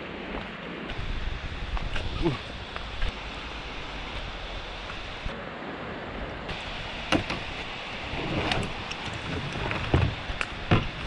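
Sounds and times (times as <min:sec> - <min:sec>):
fast-flowing river rushing: 0:00.0 - 0:11.0
kayak and paddle knocking: 0:07.1 - 0:07.6, 0:08.2 - 0:11.0.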